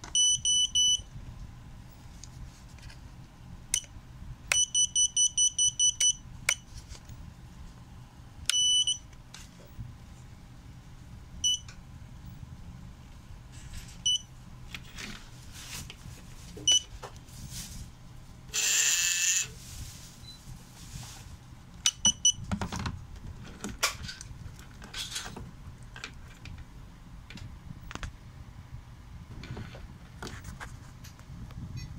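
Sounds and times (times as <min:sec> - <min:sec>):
quadcopter motors spinning: 0:18.5 - 0:19.5.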